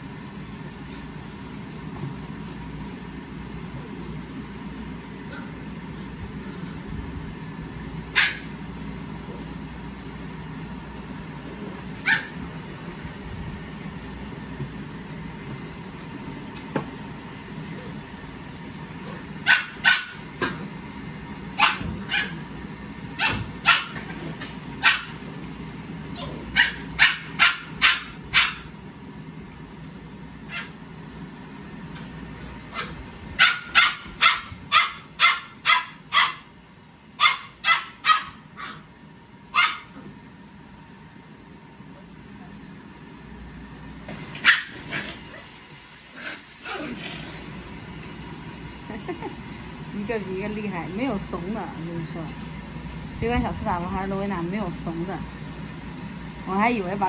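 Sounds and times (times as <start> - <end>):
steady low hum: 0.0 - 57.0
puppies barking and yipping: 8.1 - 8.5, 19.2 - 20.3, 21.6 - 22.4, 23.2 - 24.2, 24.8 - 25.2, 26.2 - 28.7, 32.7 - 36.5, 37.2 - 38.9, 39.5 - 40.0, 44.4 - 45.6.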